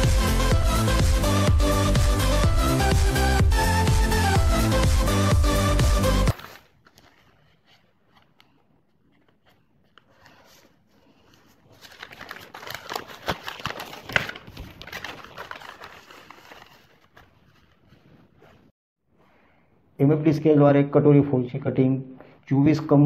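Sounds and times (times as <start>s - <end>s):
paper crinkling and rustling: 6.3s - 18.7s.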